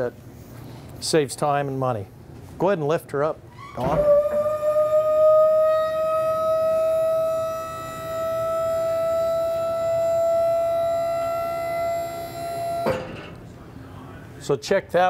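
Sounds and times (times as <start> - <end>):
hydraulic pump whining: 3.5 - 13.5.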